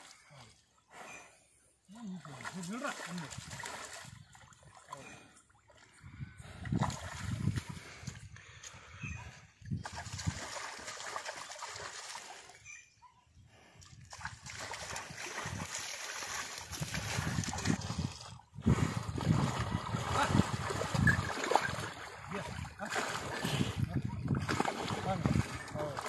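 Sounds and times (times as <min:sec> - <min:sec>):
water splashing and sloshing: 0:02.0 - 0:12.7, 0:13.8 - 0:26.0.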